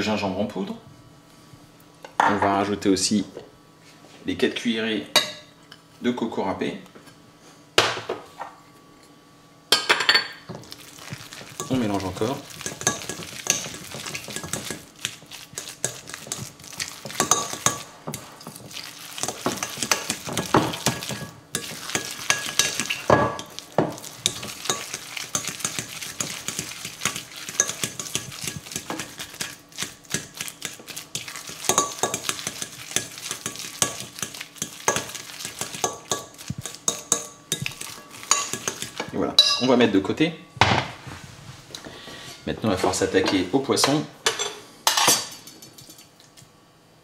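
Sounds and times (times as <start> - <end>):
fork mashing moist mixture: 10.6 - 39.2.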